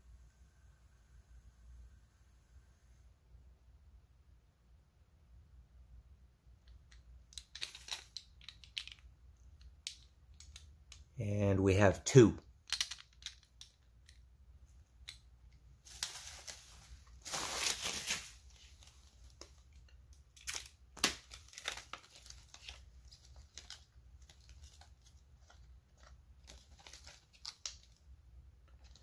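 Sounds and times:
plastic wrapping crinkling: 0:07.4 - 0:09.0, 0:15.8 - 0:28.1.

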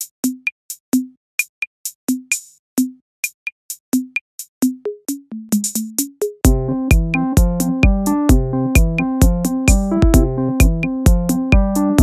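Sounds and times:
hi-hat and clap hits: 0:00.0 - 0:02.6, 0:05.6 - 0:12.0
deep kick drums: 0:06.4 - 0:12.0.

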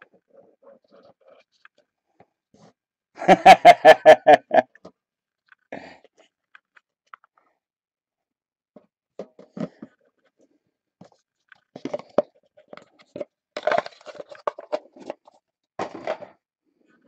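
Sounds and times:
cards and cardboard rustling: 0:09.2 - 0:16.3.

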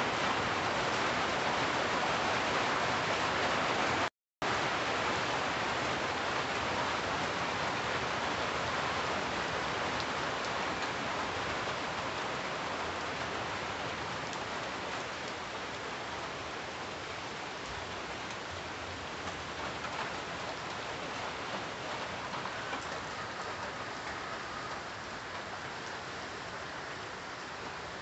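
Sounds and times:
rain on tree leaves: 0:00.0 - 0:28.0
raindrop ticks: 0:18.3 - 0:18.5, 0:19.2 - 0:26.0.

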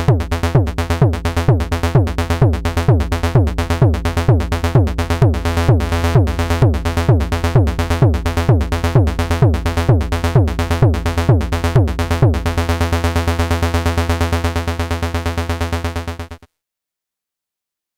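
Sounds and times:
kick drum thuds: 0:00.0 - 0:12.5
synth bass line: 0:00.0 - 0:16.4.

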